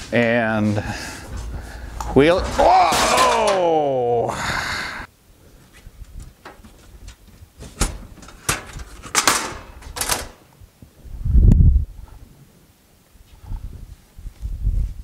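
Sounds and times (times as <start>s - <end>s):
heavy low thump: 0.8s - 4.6s
metal cart knocks and clicks: 1.0s - 3.8s.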